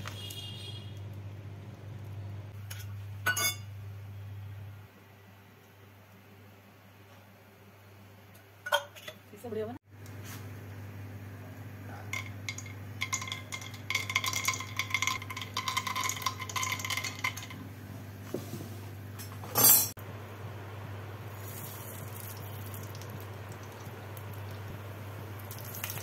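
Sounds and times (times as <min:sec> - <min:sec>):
peanuts pattering into metal pan: 0:12.2 - 0:17.6.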